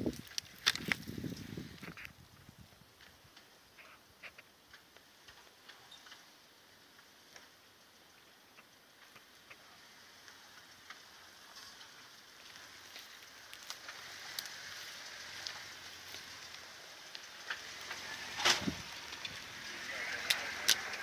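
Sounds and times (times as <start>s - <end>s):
stones popping: 0.0s - 2.2s, 12.4s - 21.0s
tyres crunching over gravel: 0.0s - 21.0s.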